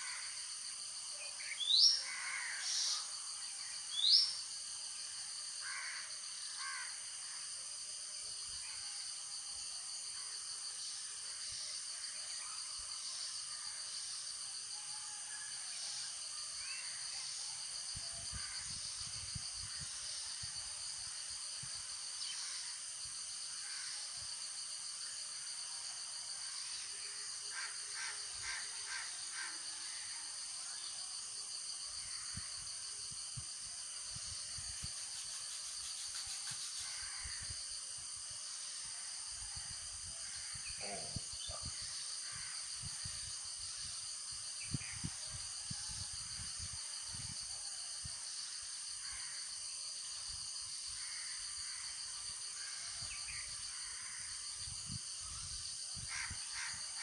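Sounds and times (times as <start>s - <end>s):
crows cawing: 2.0s - 2.7s, 5.6s - 7.0s, 56.1s - 56.8s.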